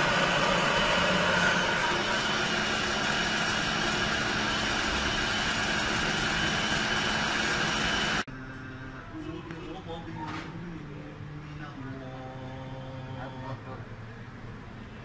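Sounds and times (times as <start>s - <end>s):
electric coffee grinder grinding: 0.0s - 8.3s.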